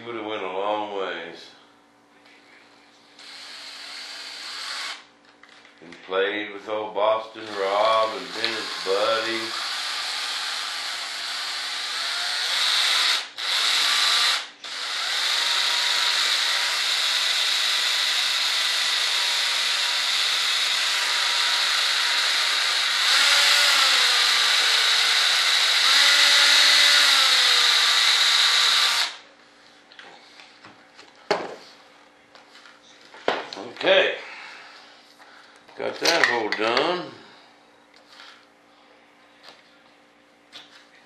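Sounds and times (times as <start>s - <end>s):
cordless drill running: 3.2s - 5.1s, 7.4s - 29.2s.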